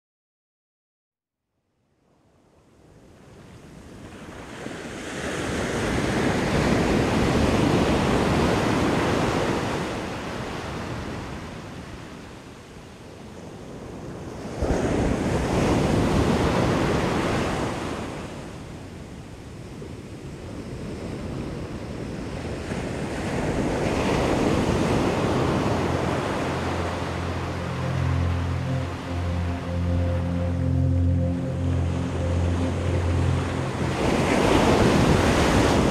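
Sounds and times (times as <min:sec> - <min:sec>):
ocean surf on sandy beach: 0:02.8 - 0:35.9.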